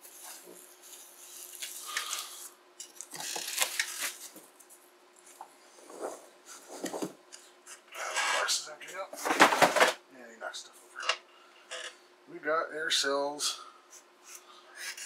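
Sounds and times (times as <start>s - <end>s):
bubble wrap and cardboard rustling: 0.0s - 7.2s.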